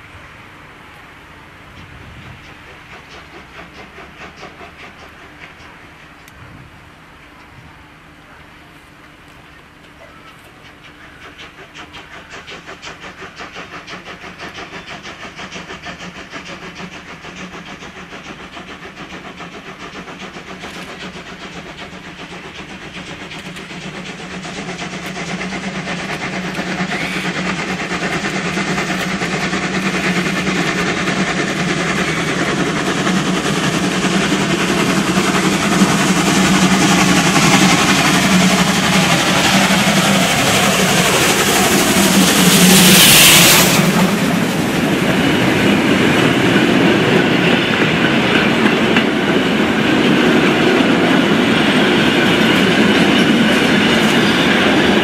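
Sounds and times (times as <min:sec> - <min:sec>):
steam locomotive exhaust beat: 0:00.0 - 0:55.0
loud hissing from drain cocks: 0:19.1 - 0:45.8.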